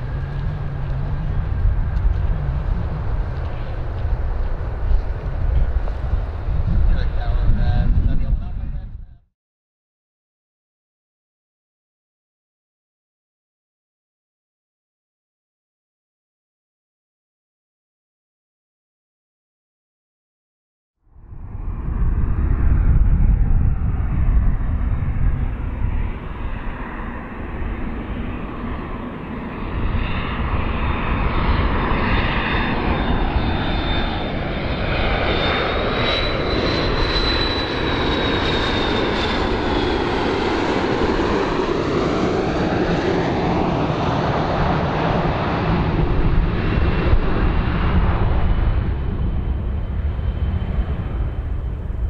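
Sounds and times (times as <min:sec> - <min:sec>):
high jet engine whine: 0:00.0 - 0:09.3, 0:21.1 - 0:52.0
jet airliner rumbling past: 0:00.0 - 0:09.3, 0:21.1 - 0:52.0.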